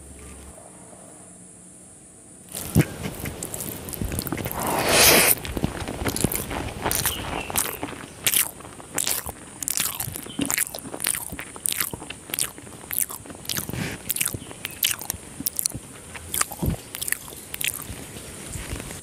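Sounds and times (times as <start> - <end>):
chewing food: 2.5 - 19.0
wet lip smacks: 6.1 - 18.0.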